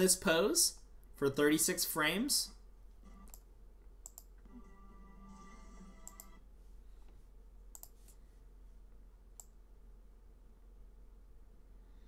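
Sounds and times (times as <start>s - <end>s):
computer mouse clicks: 3.3s - 4.4s, 6.0s - 6.4s, 7.7s - 8.2s, 9.4s - 9.6s.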